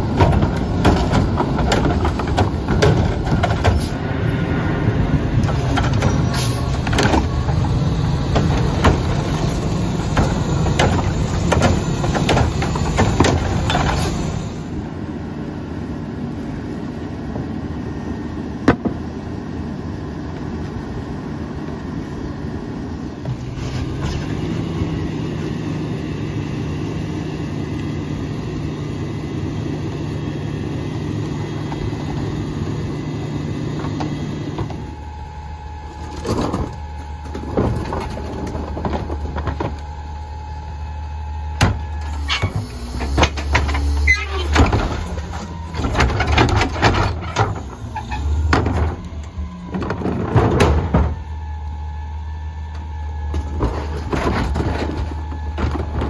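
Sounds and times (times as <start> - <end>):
clanks and bangs against hopper: 0.0 - 4.0, 5.3 - 14.6, 41.6 - 51.3
garbage truck engine revving: 0.0 - 15.6, 22.4 - 56.0.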